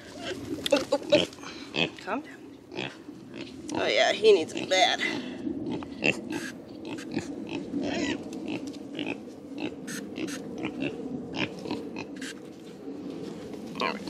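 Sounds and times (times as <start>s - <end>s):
farm animals calling: 1.1s - 12.4s.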